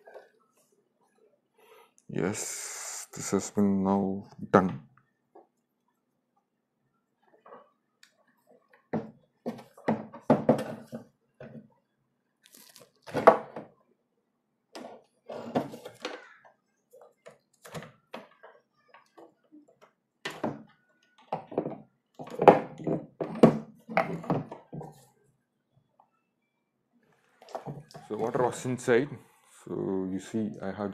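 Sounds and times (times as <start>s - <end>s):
plastic parts knocking and clicking: 8.7s - 11.7s, 13.0s - 13.8s, 14.8s - 25.0s.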